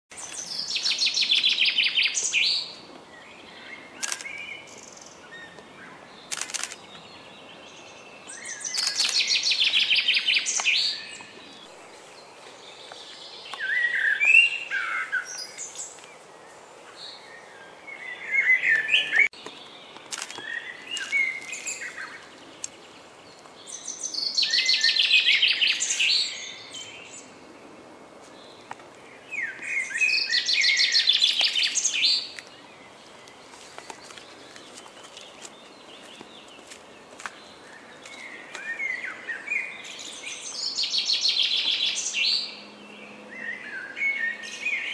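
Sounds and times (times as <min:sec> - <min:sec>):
songbird high trilling song: 0:00.2 - 0:11.7, 0:13.1 - 0:16.0, 0:23.6 - 0:27.2, 0:29.2 - 0:32.6.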